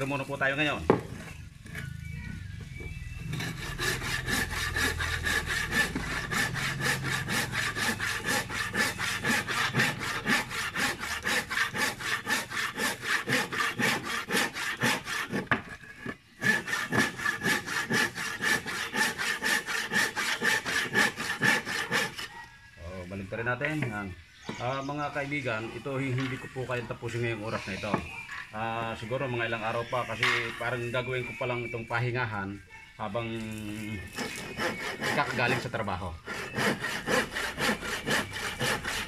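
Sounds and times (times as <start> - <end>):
handsaw cutting wood: 3.3 - 22.5, 33.8 - 39.0.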